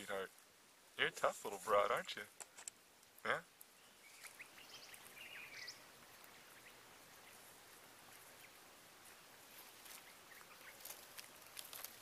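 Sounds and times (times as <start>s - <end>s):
faint steady hiss: 0.0s - 12.0s
faint chirps: 3.6s - 11.0s.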